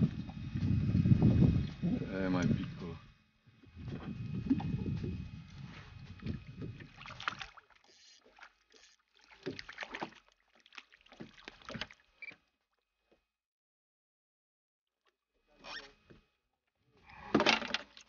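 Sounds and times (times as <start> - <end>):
fish splashing at water surface: 6.2 - 12.2.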